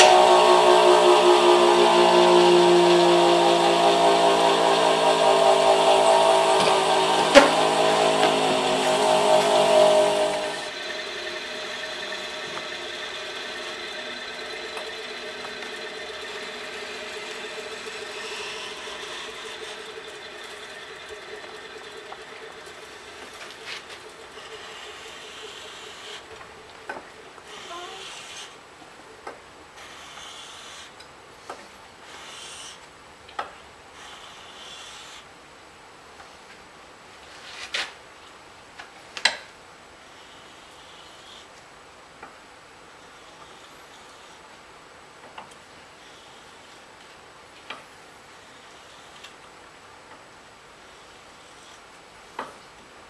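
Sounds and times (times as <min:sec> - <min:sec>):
small motor humming: 0:00.0 - 0:28.6.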